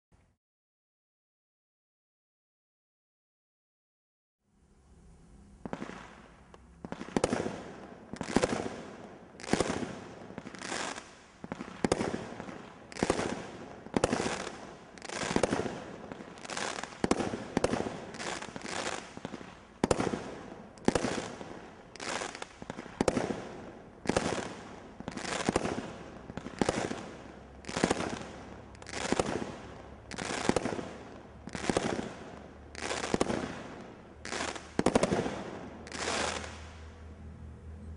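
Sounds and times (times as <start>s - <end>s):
firework cake bangs: 6.9s - 10.9s, 11.5s - 15.9s, 16.8s - 21.6s, 28.9s - 32.2s, 32.9s - 36.5s.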